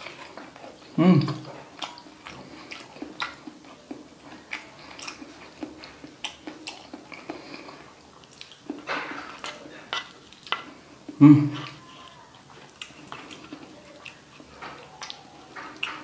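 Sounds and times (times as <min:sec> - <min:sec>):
close chewing mouth sounds: 0:00.0 - 0:16.0
wooden spoon scraping food: 0:08.7 - 0:16.0.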